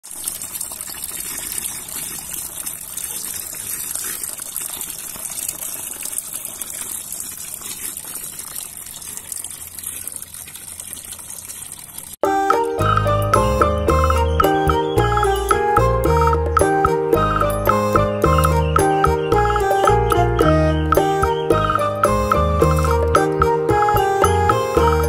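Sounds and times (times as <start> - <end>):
water pouring into pool: 0.0 - 25.0
music: 12.2 - 25.0.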